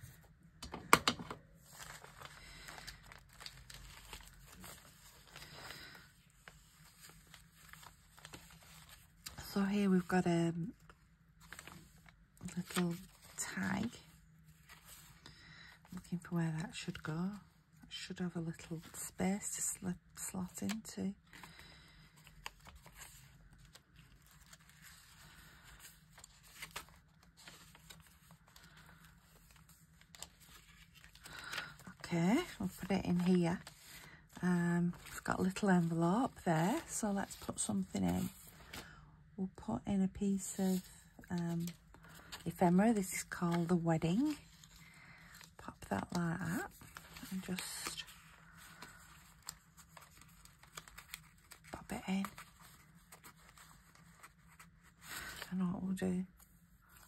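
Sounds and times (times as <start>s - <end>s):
paper rustling and crinkling: 0.0s - 17.1s, 18.5s - 39.0s, 40.4s - 55.6s, 56.2s - 57.0s
paper rustling and tapping: 0.6s - 2.3s.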